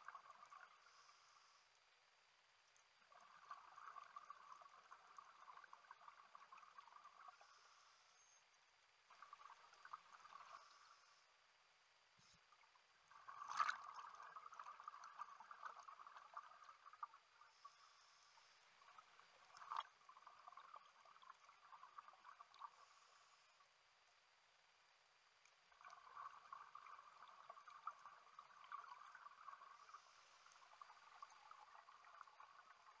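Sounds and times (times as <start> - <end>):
underwater regulator bubbles: 13.1 - 17.9.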